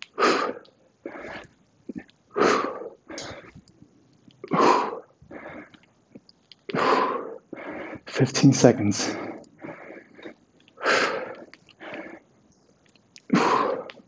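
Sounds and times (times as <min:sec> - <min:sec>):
man exhaling forcefully: 0:13.3 - 0:13.9.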